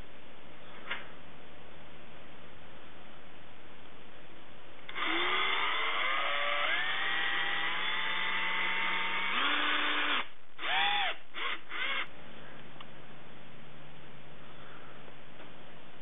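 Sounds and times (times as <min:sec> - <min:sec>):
cordless drill motor whining: 0:04.9 - 0:12.1.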